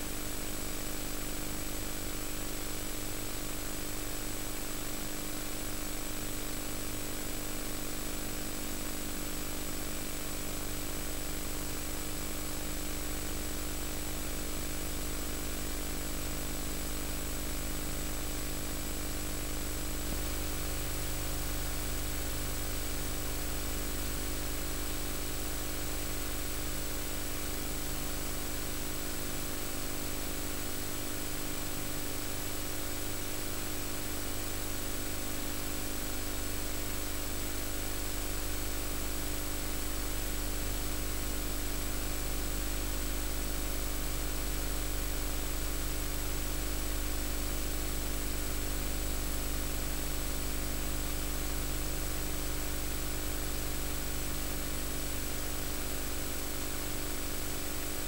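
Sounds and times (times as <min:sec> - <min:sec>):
mains hum and buzz: 0:00.0 - 0:58.0.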